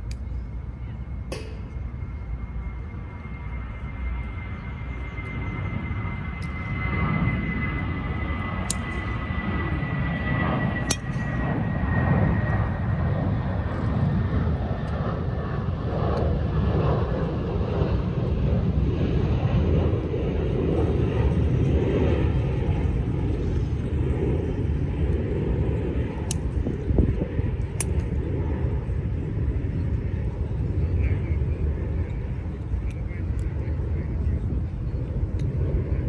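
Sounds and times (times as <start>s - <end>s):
jet airplane flying overhead: 0.0s - 36.0s
golf balls being struck: 10.8s - 11.4s.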